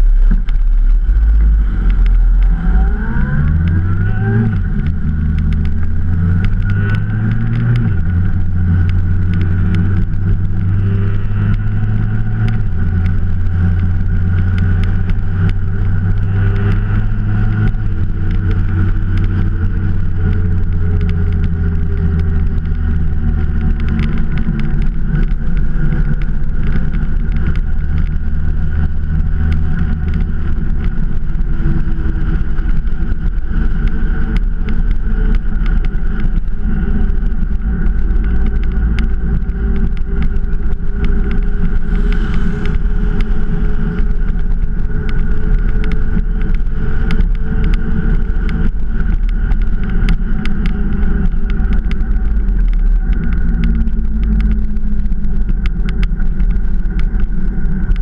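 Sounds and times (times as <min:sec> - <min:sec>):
motorcycle engine running: 0:00.0 - 0:58.0
wind and road noise: 0:00.0 - 0:58.0.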